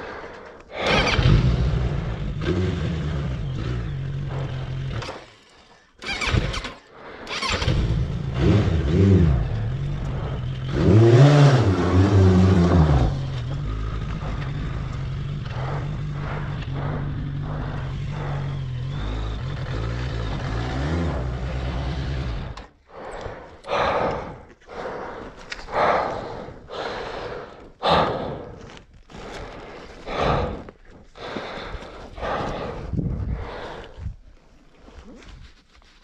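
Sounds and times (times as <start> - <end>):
person breathing hard: 0.0 - 2.3, 6.2 - 7.6, 8.8 - 20.2, 21.1 - 35.4
motorcycle engine running: 0.8 - 5.2, 7.4 - 22.7.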